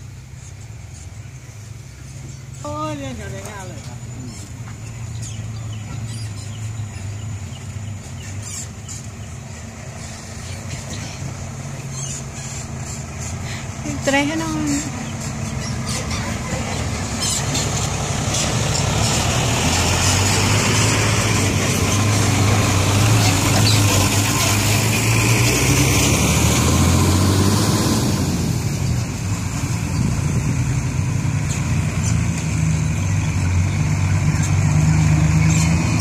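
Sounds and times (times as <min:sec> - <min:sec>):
diesel trucks driving slowly: 0:00.0 - 0:36.0.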